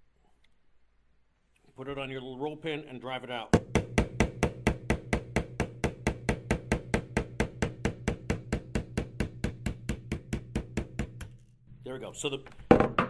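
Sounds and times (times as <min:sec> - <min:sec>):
hammer tapping steel pin punch: 0:03.6 - 0:11.5.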